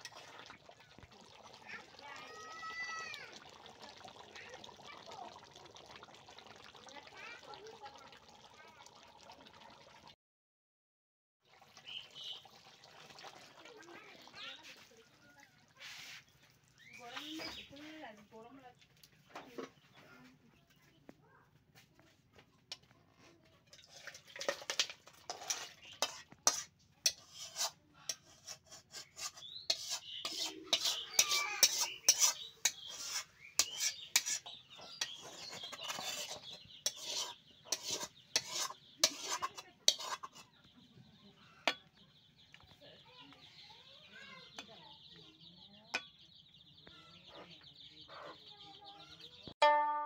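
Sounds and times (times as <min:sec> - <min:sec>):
spatula scraping a metal pot: 0:00.0 - 0:03.9, 0:23.1 - 0:40.8, 0:41.6 - 0:41.9
clinks against metal pot: 0:23.7 - 0:28.4, 0:29.2 - 0:40.5, 0:45.9 - 0:46.2.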